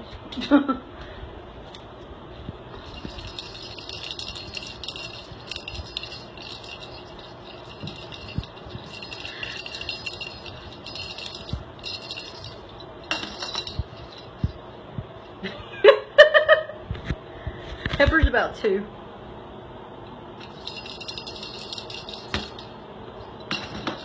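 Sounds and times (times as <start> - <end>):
toy ball rattling: 2.7 - 14.6, 20.4 - 24.0.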